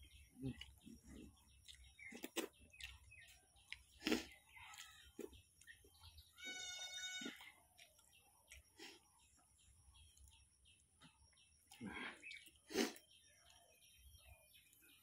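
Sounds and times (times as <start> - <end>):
chewing and lip smacking: 0.4 - 5.9, 7.2 - 9.1.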